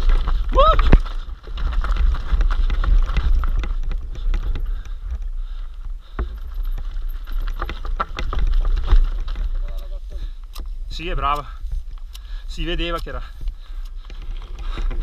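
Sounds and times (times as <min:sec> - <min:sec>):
tyres rumbling over stones: 0:00.0 - 0:05.4, 0:06.0 - 0:10.3
bike rattling over rocks: 0:00.0 - 0:15.0.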